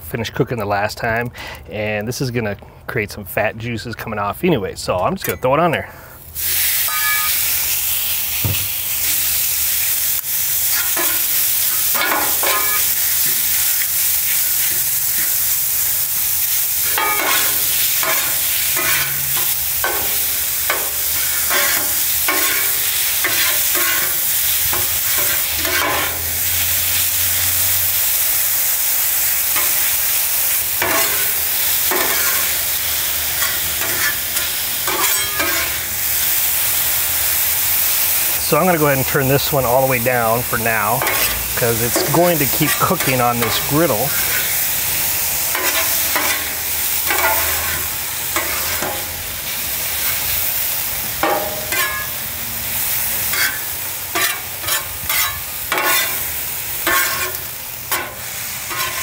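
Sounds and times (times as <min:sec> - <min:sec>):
meat sizzling on griddle: 0:06.2 - 0:59.0
metal spatula scraping griddle: 0:06.8 - 0:07.6, 0:10.6 - 0:15.9, 0:16.8 - 0:27.6, 0:30.8 - 0:32.6, 0:33.3 - 0:35.9, 0:40.8 - 0:44.7, 0:45.5 - 0:49.1, 0:51.2 - 0:52.2, 0:53.1 - 0:59.0.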